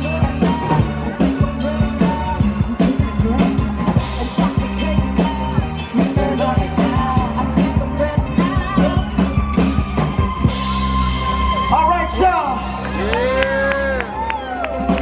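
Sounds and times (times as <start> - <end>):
woman singing into a microphone: 0.0 - 9.6
drum kit beat: 0.0 - 11.6
keyboard: 0.0 - 15.0.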